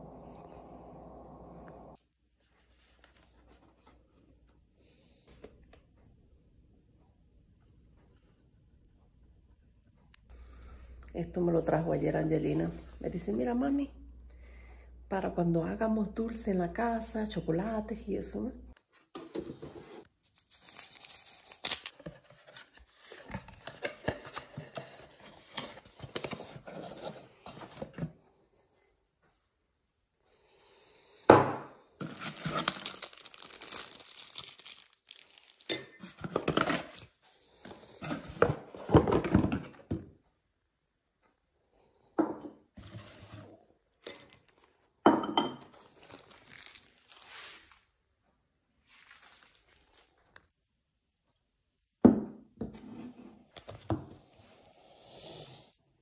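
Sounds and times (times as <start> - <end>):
plastic sleeve crinkling: 32.0 - 37.1, 45.7 - 48.0, 48.8 - 50.4.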